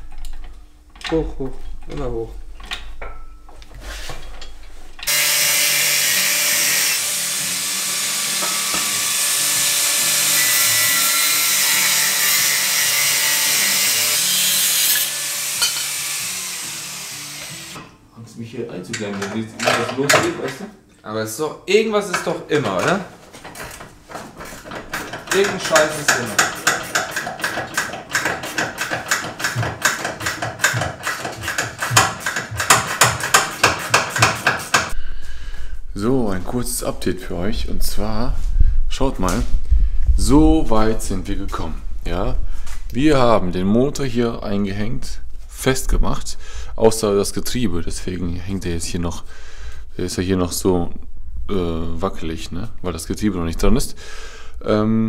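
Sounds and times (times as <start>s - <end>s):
metallic clicks and clanks: 0.0s - 5.1s, 22.1s - 35.0s
angle grinder cutting metal pipe: 5.0s - 17.9s, 24.7s - 35.0s.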